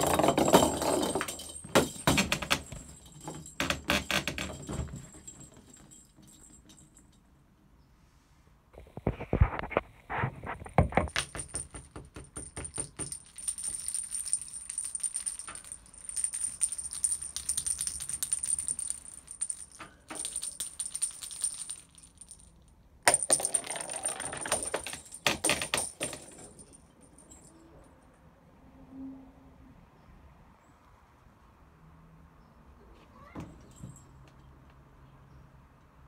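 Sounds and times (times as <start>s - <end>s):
plastic balls rattling: 0.0s - 5.0s, 10.9s - 22.5s, 23.1s - 26.8s
plastic balls knocking: 10.7s - 13.9s, 23.1s - 26.4s
bells jingling: 12.9s - 22.5s.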